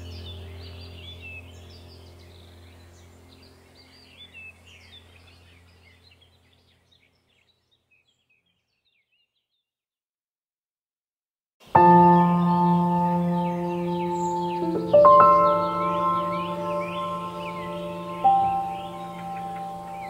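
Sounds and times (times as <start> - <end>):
low steady hum: 0.0 - 7.6, 11.7 - 20.0
birds chirping: 0.0 - 9.7, 11.6 - 20.0.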